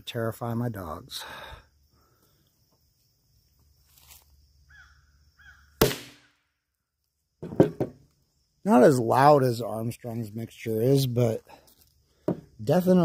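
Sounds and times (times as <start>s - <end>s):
sharp explosive bang: 5.8s - 6.3s.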